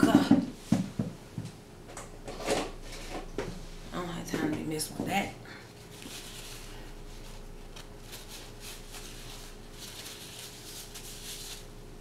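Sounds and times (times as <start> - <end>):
low electrical hum: 0.0 - 12.0
paper napkin rustling: 5.7 - 11.8.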